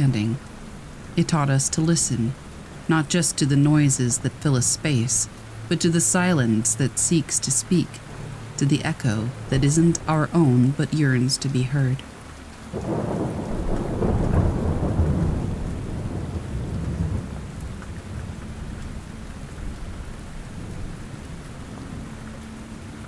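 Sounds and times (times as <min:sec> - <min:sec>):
steady rain: 0:00.0 - 0:23.0
thunder rumbling: 0:12.7 - 0:22.2.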